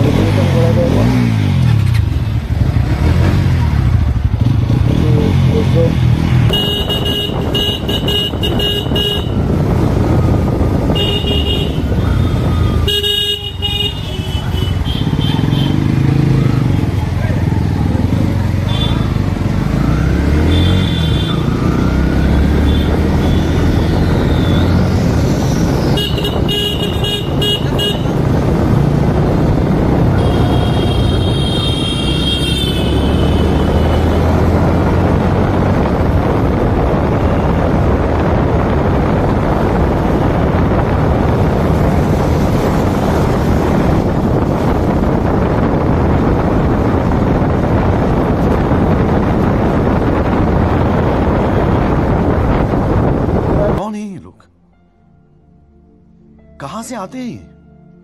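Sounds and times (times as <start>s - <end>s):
motorcycle engine running: 0.0s - 53.6s
wind and road noise: 0.0s - 58.0s
vehicle horns beeping: 5.5s - 9.5s, 10.9s - 15.9s, 18.6s - 19.2s, 20.4s - 21.6s, 25.9s - 28.3s, 30.1s - 34.4s.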